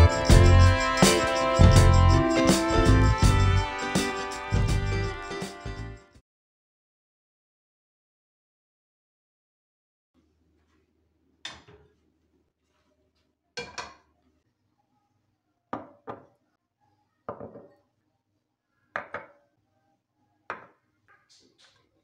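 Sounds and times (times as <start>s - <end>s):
ceramic bowls set down on countertop: 11.4s - 11.9s, 13.6s - 14.1s, 15.8s - 16.3s, 17.3s - 17.8s, 19.0s - 19.4s, 20.5s - 20.8s.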